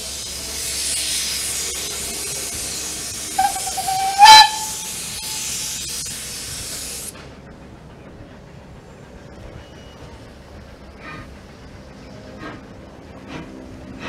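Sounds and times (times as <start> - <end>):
steam locomotive hissing: 0.0 - 14.0
steam whistle toot: 3.4 - 5.8.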